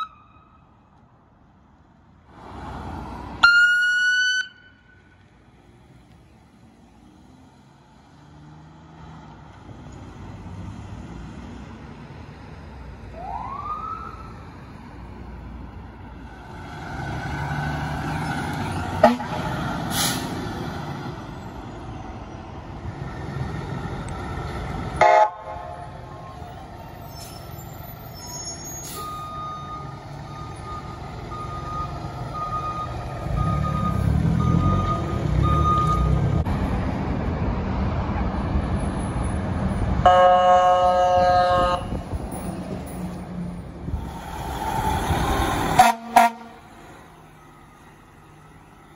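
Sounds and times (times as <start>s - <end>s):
fire engine rumbling: 0.0s - 48.9s
loud air horn blast: 19.0s - 19.5s, 25.0s - 25.8s, 40.0s - 41.9s, 45.7s - 46.7s
short horn blast: 45.8s - 46.6s.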